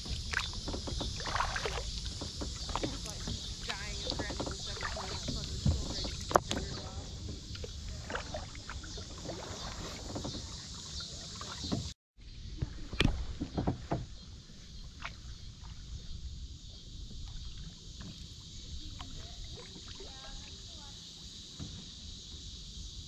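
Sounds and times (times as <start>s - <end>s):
water drips: 0.0s - 11.8s
knocks on boat: 0.0s - 11.9s, 12.6s - 14.2s, 21.5s - 22.0s
water lapping and splashing: 0.0s - 22.6s
wind rumbling on microphone: 0.0s - 23.0s.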